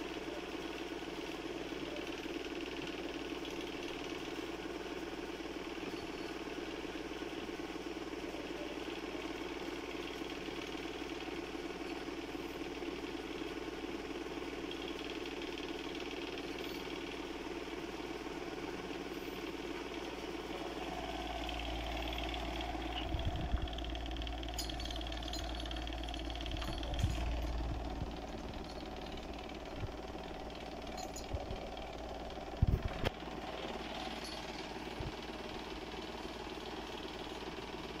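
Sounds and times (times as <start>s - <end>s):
motor humming: 0.0s - 38.0s.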